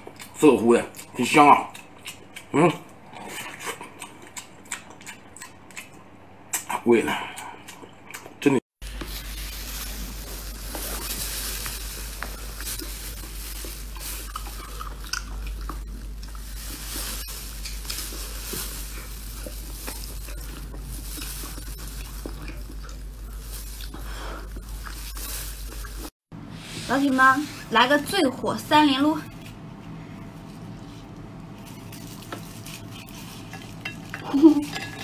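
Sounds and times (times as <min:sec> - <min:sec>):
chewing and biting: 0:00.0 - 0:08.4, 0:09.2 - 0:26.1
constant low hum: 0:00.0 - 0:35.0.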